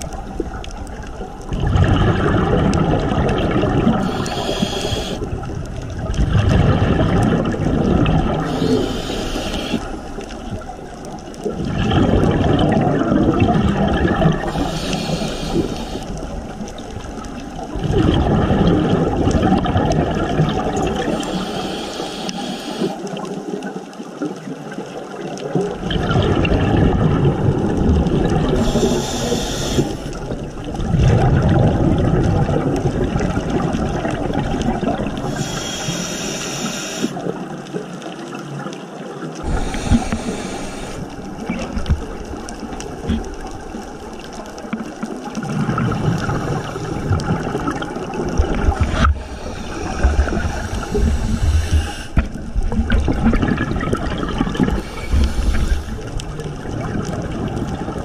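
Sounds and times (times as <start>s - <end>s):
exhaled air bubbling: 0.0s - 58.0s
scuba regulator inhalation hiss: 3.9s - 5.3s, 8.4s - 10.2s, 14.4s - 16.3s, 21.1s - 23.2s, 28.5s - 30.3s, 35.2s - 37.3s, 39.5s - 41.3s, 48.9s - 52.2s, 54.7s - 56.1s.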